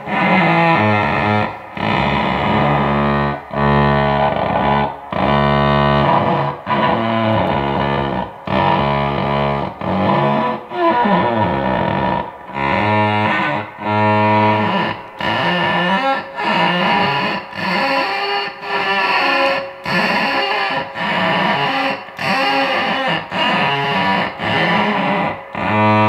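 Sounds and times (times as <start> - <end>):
electric cello bowed notes: 0.0 - 17.2.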